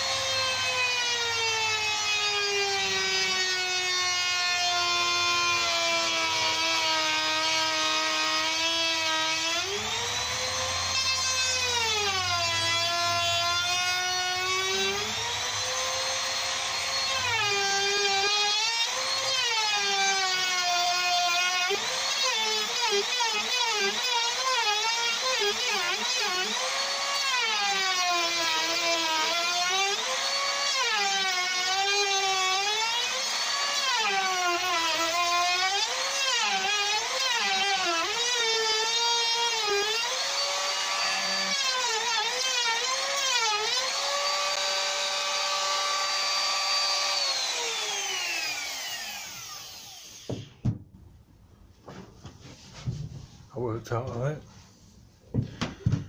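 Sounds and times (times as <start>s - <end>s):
router motor whine: 0.0s - 50.6s
knocks: 50.2s - 51.0s, 55.3s - 56.0s.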